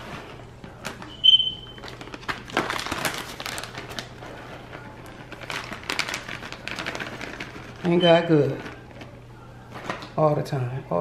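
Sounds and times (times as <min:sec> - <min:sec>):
plastic bag crinkling: 0:00.0 - 0:10.2
short high beep: 0:01.1 - 0:01.7.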